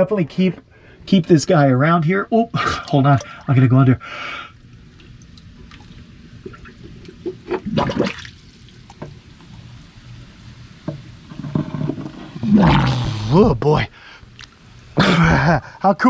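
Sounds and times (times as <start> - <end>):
water sloshing and lapping: 2.6 - 3.7, 5.0 - 9.2
water gushing: 5.6 - 9.0, 12.2 - 13.6.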